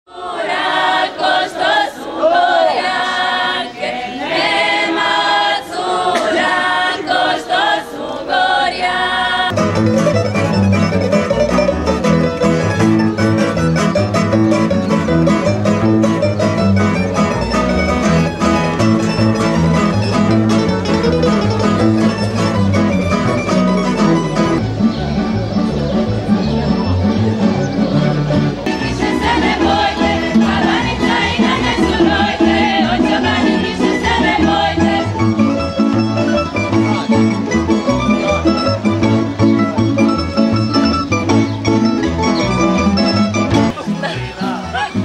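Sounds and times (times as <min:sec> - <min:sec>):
plucked double bass: 0:09.5 - 0:45.0
plucked strings strummed: 0:09.5 - 0:45.0
person singing unaccompanied: 0:28.7 - 0:35.6.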